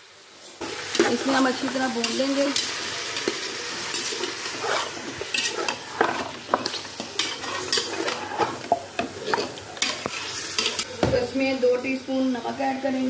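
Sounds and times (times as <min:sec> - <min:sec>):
meat sizzling in hot oil: 0:00.0 - 0:10.9
spatula scraping and knocking pot: 0:04.0 - 0:10.9.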